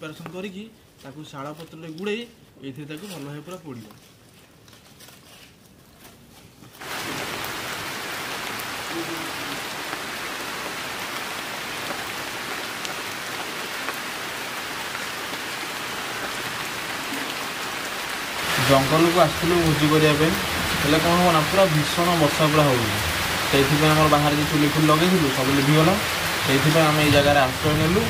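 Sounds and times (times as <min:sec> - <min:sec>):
heavy rain falling: 0:06.8 - 0:28.0.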